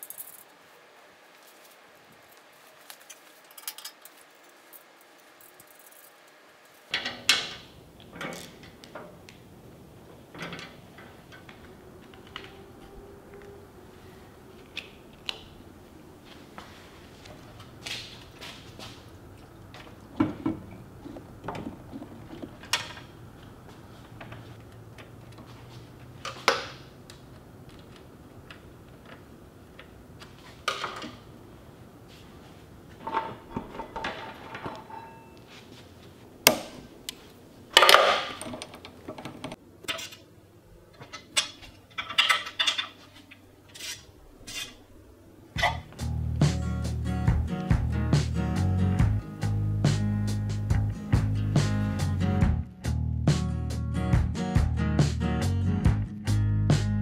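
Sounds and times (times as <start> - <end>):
metal tools clinking and knocking: 0.0 - 0.5, 3.1 - 6.1, 33.0 - 35.4, 41.0 - 44.8.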